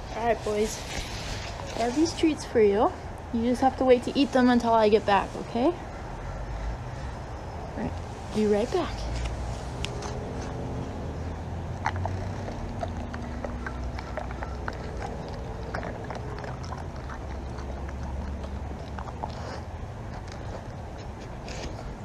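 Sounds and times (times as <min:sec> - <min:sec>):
low outdoor rumble: 0:00.0 - 0:22.0
dog chewing treats: 0:08.9 - 0:22.0.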